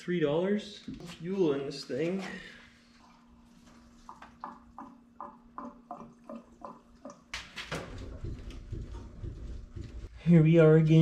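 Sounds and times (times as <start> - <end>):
knocks: 7.4 - 10.1.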